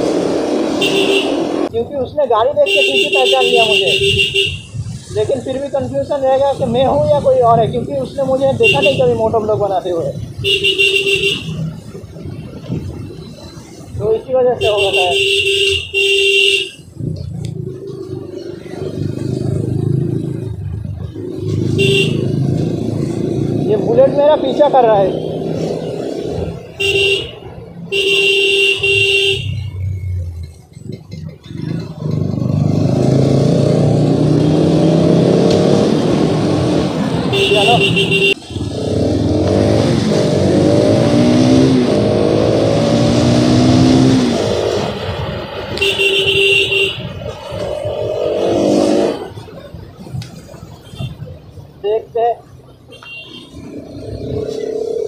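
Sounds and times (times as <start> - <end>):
motorcycle engine: 0.0 - 1.8, 15.1 - 50.0
vehicle horn: 0.8 - 1.4, 2.7 - 4.8, 10.4 - 11.6, 14.7 - 16.8, 21.7 - 22.4, 26.8 - 29.6, 37.3 - 38.7, 45.8 - 47.2, 52.9 - 53.6
motorcycle engine accelerating hard: 31.4 - 37.2, 38.5 - 45.5.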